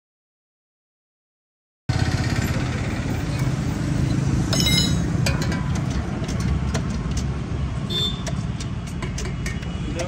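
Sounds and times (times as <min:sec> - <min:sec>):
motorcycle engine idling: 0:01.9 - 0:03.6.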